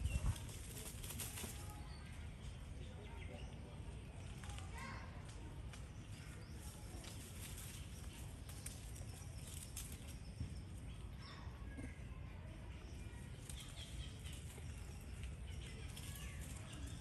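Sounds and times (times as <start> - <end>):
light clicks and rustles: 4.2 - 10.4.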